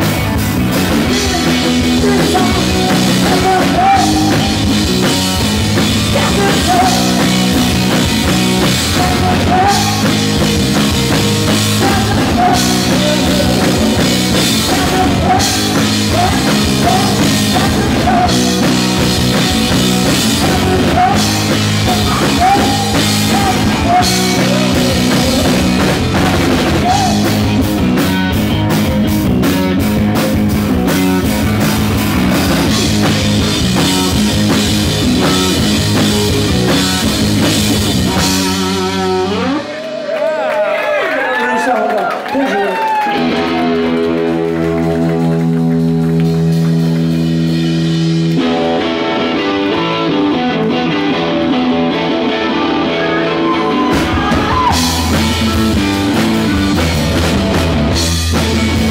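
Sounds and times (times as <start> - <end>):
drum kit: 0.0 - 40.0, 43.0 - 58.9
electric guitar: 0.0 - 41.4, 42.0 - 58.9
rapid drum hits: 53.9 - 58.9.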